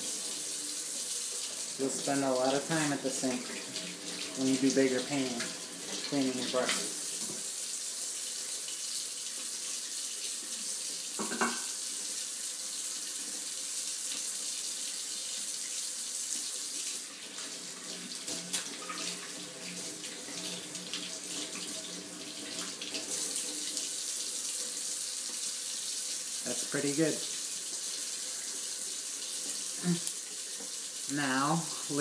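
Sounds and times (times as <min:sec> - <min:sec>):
tap water running into sink: 0:00.0 - 0:32.0.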